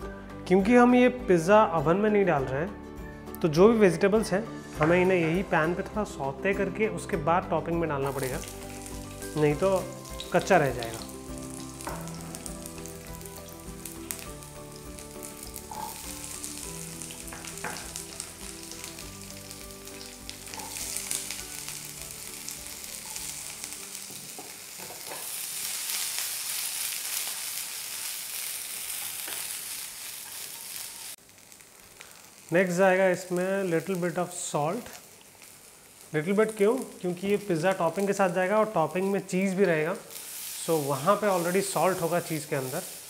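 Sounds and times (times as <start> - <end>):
soft background music: 0.0 - 27.5, 36.2 - 43.0
vegetables sizzling in oil: 8.0 - 43.0.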